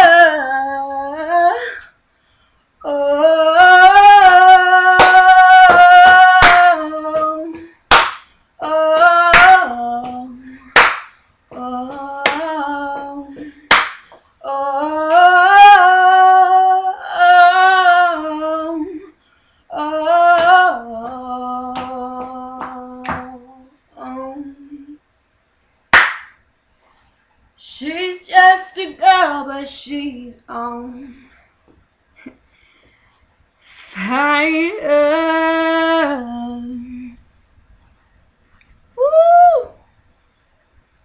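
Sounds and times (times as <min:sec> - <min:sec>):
woman singing wordless notes: 0:00.0 - 0:01.8, 0:02.8 - 0:07.8, 0:08.6 - 0:10.8, 0:11.5 - 0:13.7, 0:14.4 - 0:25.0, 0:27.6 - 0:31.3, 0:33.8 - 0:37.2
hand claps: 0:05.0 - 0:08.4, 0:09.3 - 0:10.2, 0:10.8 - 0:14.3, 0:21.8 - 0:23.4, 0:25.9 - 0:26.4.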